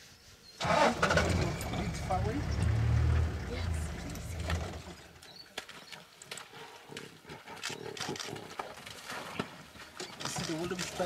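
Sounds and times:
lion growling: 6.4s - 8.9s.

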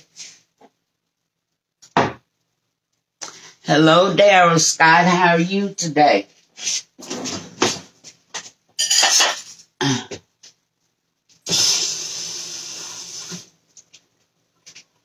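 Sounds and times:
utensils and dishes clattering: 8.8s - 9.7s.

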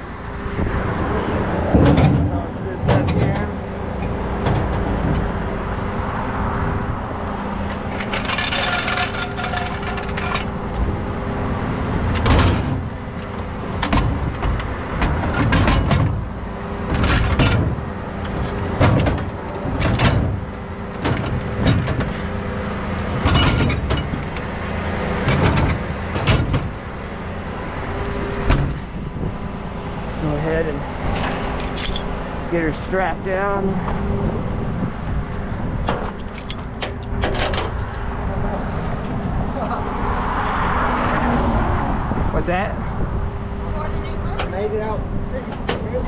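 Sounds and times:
metal clanks and knocks: 1.6s - 5.5s, 7.7s - 11.3s, 12.0s - 22.4s, 23.0s - 26.9s, 28.4s - 29.4s, 30.9s - 32.2s, 35.8s - 38.0s
rattling scrape: 7.7s - 11.2s.

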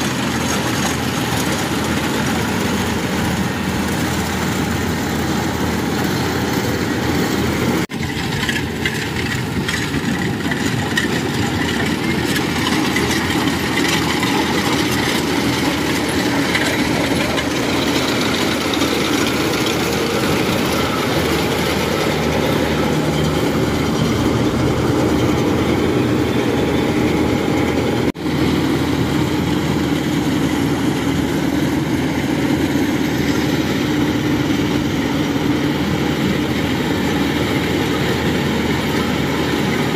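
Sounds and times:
combine harvester engine drone: 0.0s - 39.9s.

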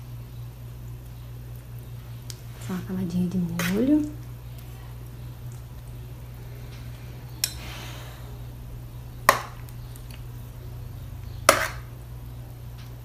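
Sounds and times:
low steady hum: 0.0s - 13.0s
spoon scraping: 11.4s - 11.9s.

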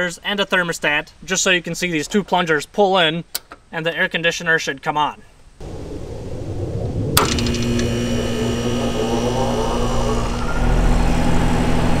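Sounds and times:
compressor humming: 5.6s - 12.0s
motors whining: 7.1s - 12.0s.

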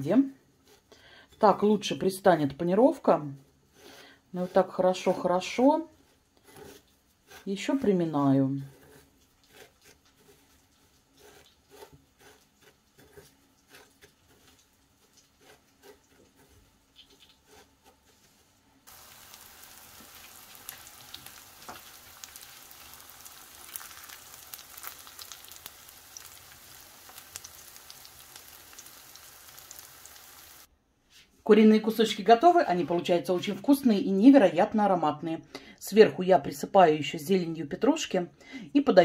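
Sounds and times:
crunchy rustles of breadcrumbs: 8.4s - 30.7s
chicken sizzling in oil: 18.9s - 30.7s.

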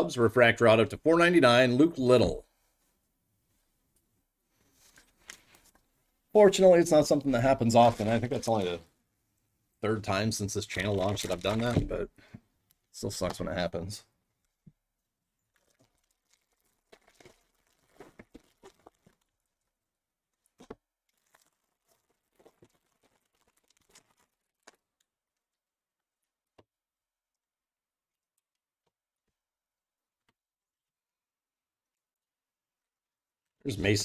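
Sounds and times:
foil wrapper tearing: 10.7s - 11.9s, 15.6s - 19.5s, 20.4s - 25.1s.

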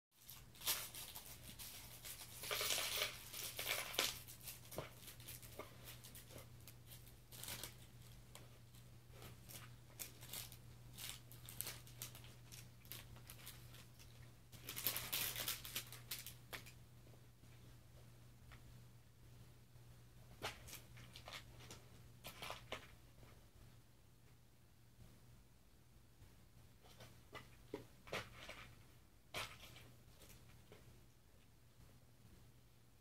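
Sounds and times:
faint rustling and crinkling: 0.1s - 25.3s, 26.2s - 33.0s.

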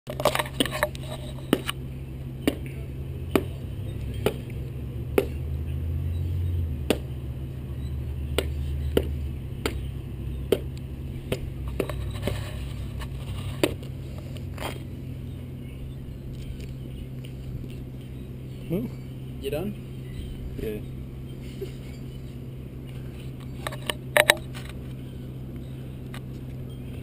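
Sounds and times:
sharp clicks on asphalt: 0.1s - 1.8s, 8.3s - 14.9s, 16.3s - 18.2s
steady low hum: 0.1s - 27.0s.

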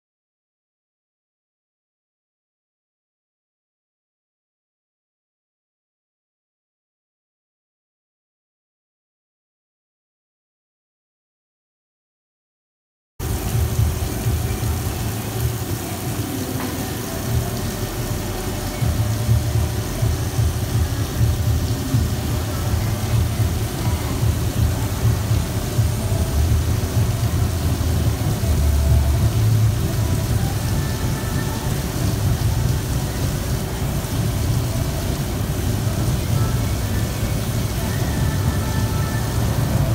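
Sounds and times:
milling machine rumble: 13.2s - 39.9s
steady hiss: 13.2s - 39.9s.

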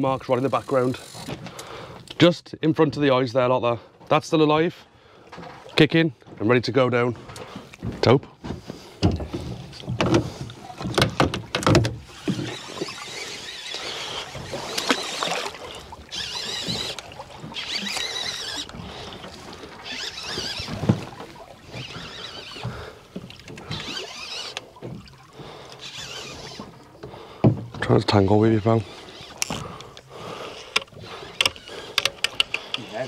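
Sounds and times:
fishing reel whirring: 0.0s - 2.2s, 11.5s - 27.2s, 28.2s - 33.0s
boat and sea noise: 0.0s - 33.0s.

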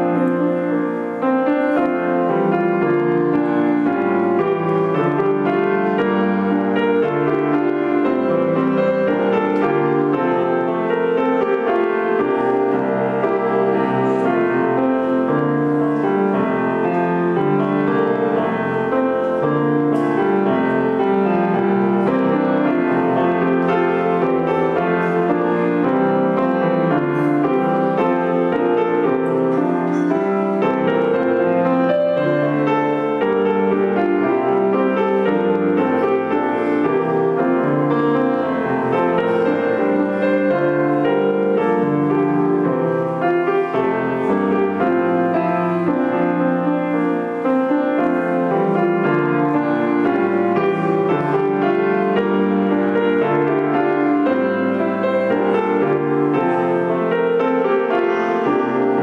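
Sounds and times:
piano music: 0.0s - 59.0s.

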